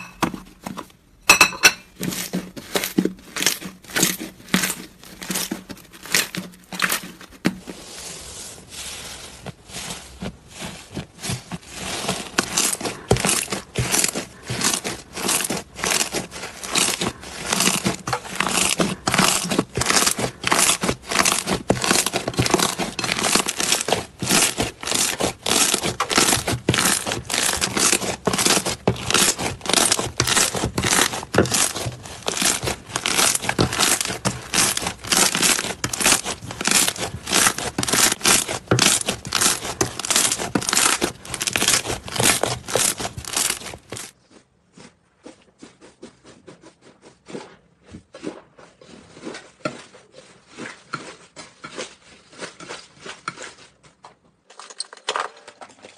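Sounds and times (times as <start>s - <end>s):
slime crackling and popping: 11.9s - 44.2s.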